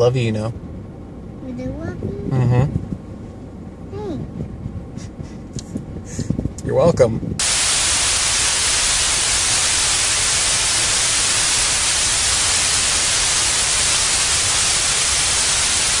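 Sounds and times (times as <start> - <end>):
television static hiss: 7.4 - 16.0.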